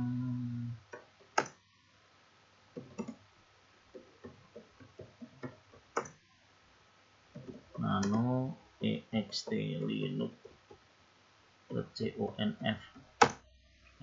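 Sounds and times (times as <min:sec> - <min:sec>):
steady hum: 0:00.0 - 0:04.5
keyboard typing: 0:02.8 - 0:03.2.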